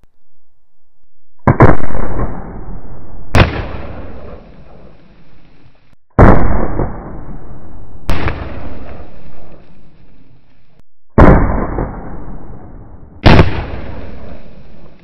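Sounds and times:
gunshots: 1.4s - 2.7s, 3.4s - 5.1s, 6.2s - 10.4s, 11.2s - 15.0s
rolling echo: 1.4s - 15.0s.

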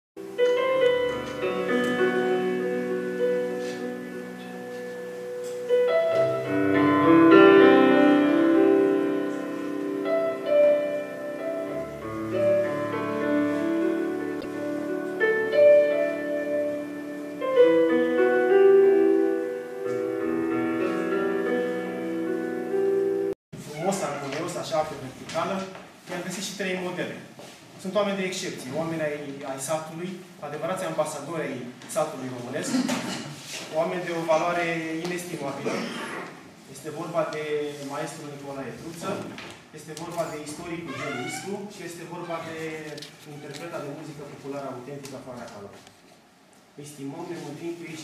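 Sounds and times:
slow piano chords: 0.2s - 23.4s.

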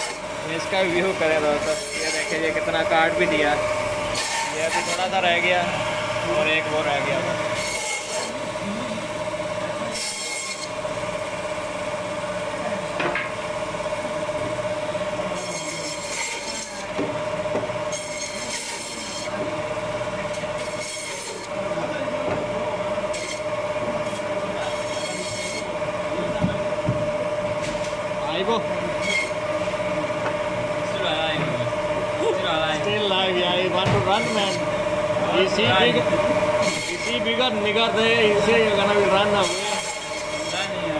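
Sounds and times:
band saw whining: 0.0s - 40.9s
saw blade rasping through bone: 1.6s - 2.5s, 4.1s - 5.1s, 7.5s - 8.4s, 15.4s - 17.0s, 18.0s - 19.4s, 20.4s - 21.5s, 36.6s - 37.3s, 39.4s - 40.8s.

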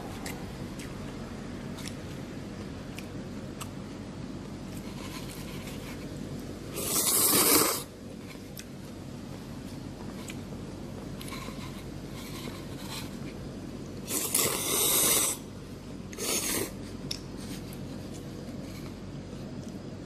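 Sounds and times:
person slurping noodles: 6.7s - 7.9s, 14.1s - 15.4s.

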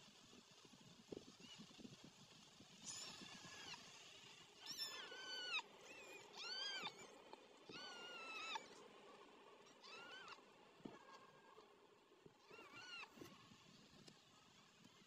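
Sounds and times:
kittens mewing: 4.6s - 8.8s, 9.7s - 11.2s, 12.4s - 13.3s.

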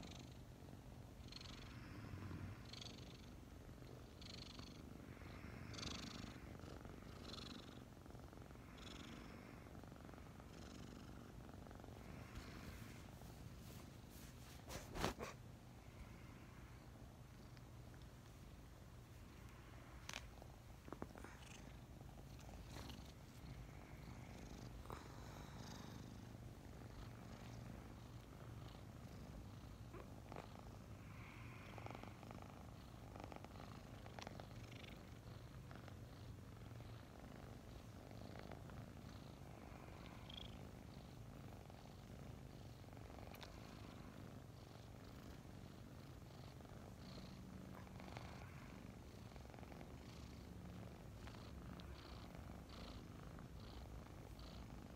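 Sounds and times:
kittens purring: 0.0s - 54.9s
rustles and clicks of movement: 12.6s - 15.5s.

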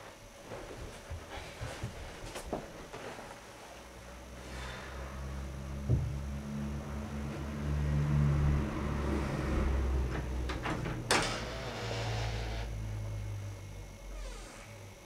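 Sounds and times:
low hum: 3.8s - 15.0s.

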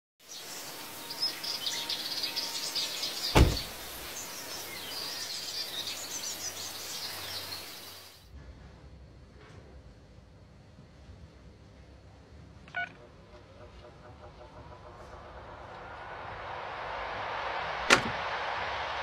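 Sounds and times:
small birds chirping: 0.2s - 8.2s
outdoor hiss: 0.2s - 8.3s
car door slam: 3.3s - 4.0s.

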